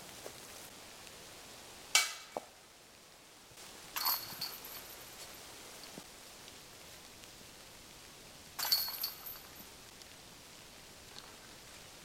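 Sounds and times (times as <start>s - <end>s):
basket chains jingling: 4.0s - 5.2s, 8.6s - 9.6s
metallic clank with ring: 8.6s - 9.5s.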